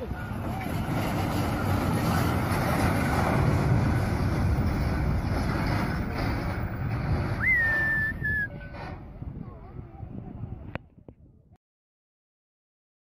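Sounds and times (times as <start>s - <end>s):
heavy trucks rumbling: 0.0s - 10.7s
wind buffeting microphone: 0.0s - 11.6s
high whistle: 7.4s - 8.6s.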